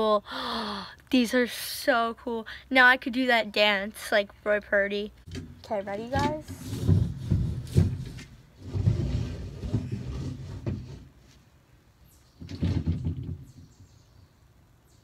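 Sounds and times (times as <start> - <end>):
chair being dragged: 6.1 - 11.3.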